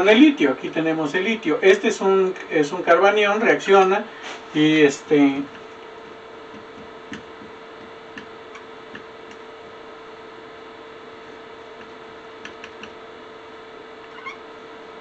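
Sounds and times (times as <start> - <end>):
steady hum: 0.0 - 15.0
marker squeaking on whiteboard: 14.0 - 14.4.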